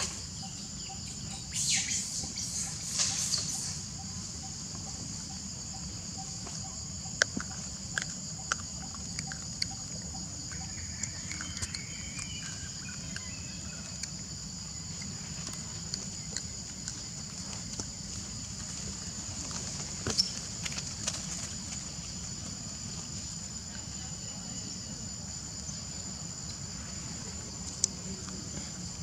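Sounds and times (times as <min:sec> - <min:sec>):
high-pitched insect drone: 0:00.0 - 0:19.3
bird chirps: 0:00.4 - 0:04.2, 0:08.8 - 0:14.1.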